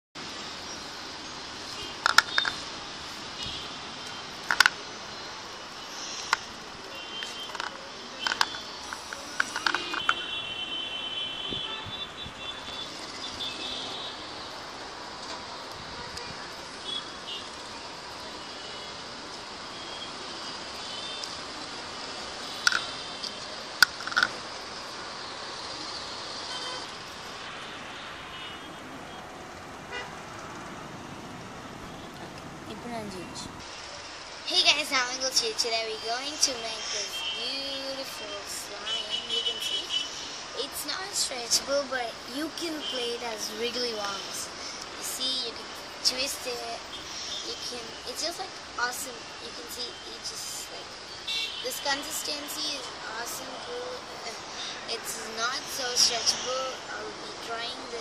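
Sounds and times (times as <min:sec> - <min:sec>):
steady hiss: 0:00.2 - 0:32.0, 0:33.6 - 0:58.0
distant street traffic hum: 0:00.2 - 0:58.0.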